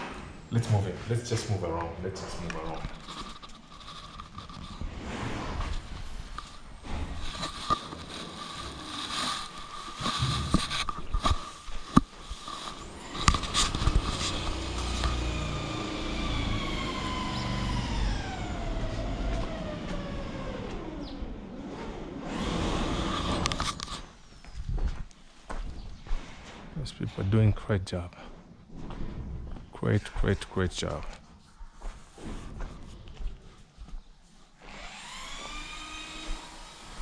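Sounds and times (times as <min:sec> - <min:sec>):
footsteps and knocks: 0:05.6 - 0:16.9, 0:18.4 - 0:21.0, 0:23.2 - 0:30.1, 0:31.0 - 0:34.3
passing engine whine: 0:13.8 - 0:21.5.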